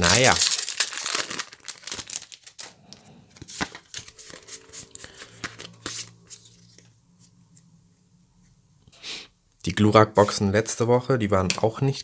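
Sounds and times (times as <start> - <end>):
packaging crinkling: 0.0 - 6.1
faint low hum: 2.8 - 11.4
cards being handled: 3.4 - 6.8.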